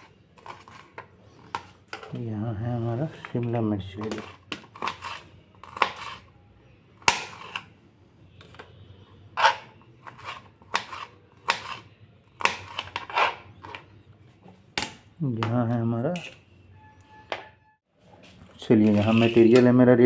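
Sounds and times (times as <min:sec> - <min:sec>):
knife chopping on plastic board: 0:04.0 - 0:06.2, 0:07.0 - 0:07.7, 0:09.4 - 0:11.8, 0:12.4 - 0:13.8, 0:14.7 - 0:15.6.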